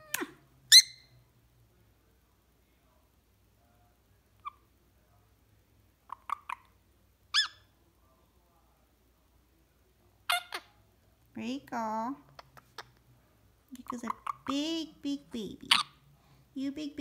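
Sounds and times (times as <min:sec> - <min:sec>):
parrot chirps and squeaks: 0:00.0 - 0:01.2, 0:06.0 - 0:07.7, 0:10.3 - 0:10.7, 0:12.4 - 0:13.0, 0:13.8 - 0:14.6, 0:15.7 - 0:16.0.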